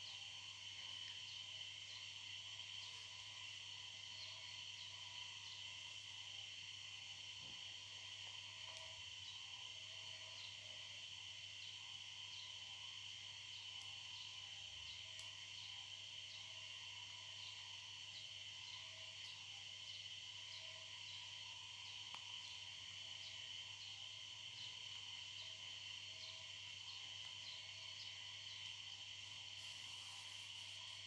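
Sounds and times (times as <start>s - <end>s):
faint high ticks: 22.0s - 22.3s.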